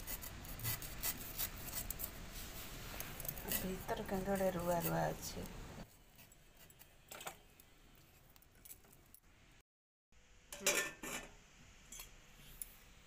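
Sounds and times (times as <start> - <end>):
steel cookware clinking: 10.6 - 12.2.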